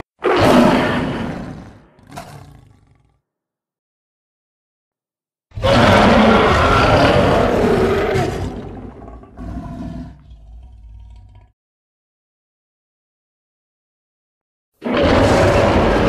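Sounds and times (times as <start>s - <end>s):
monster roar: 0.0s - 3.2s, 5.5s - 11.5s, 14.8s - 16.0s.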